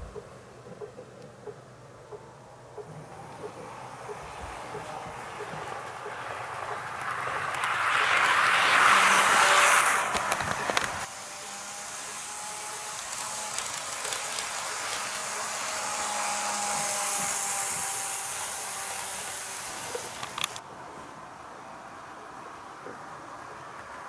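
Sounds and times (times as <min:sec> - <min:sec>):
clicks over rail joints: 0:02.8 - 0:11.1
model train motor whir: 0:03.7 - 0:20.6.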